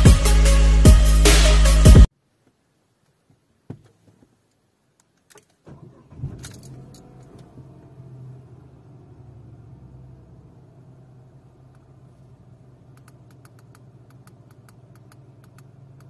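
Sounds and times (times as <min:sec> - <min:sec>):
car engine cranking and idling: 0:05.6 - 0:16.0.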